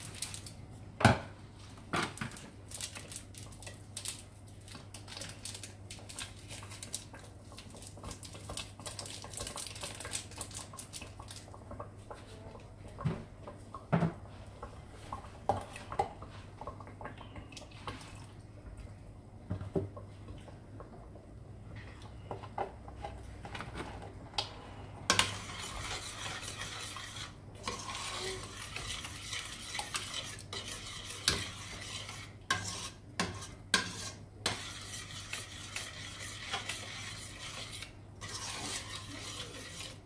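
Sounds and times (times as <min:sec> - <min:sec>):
foil sachet crackling and rustling: 0:00.0 - 0:00.6, 0:02.7 - 0:11.4.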